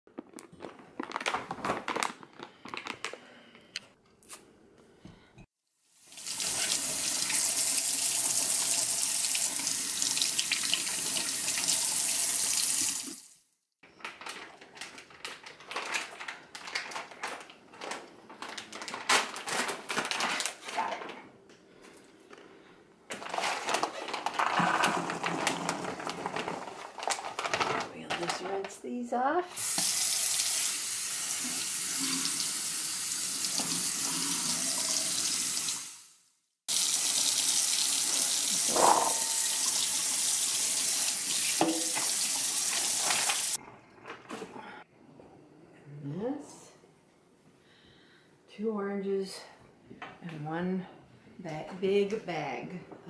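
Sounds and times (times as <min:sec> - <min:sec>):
plastic bag crinkling: 0:00.1 - 0:03.6, 0:13.8 - 0:21.2, 0:23.1 - 0:28.8
berries poured into colander: 0:23.2 - 0:27.8.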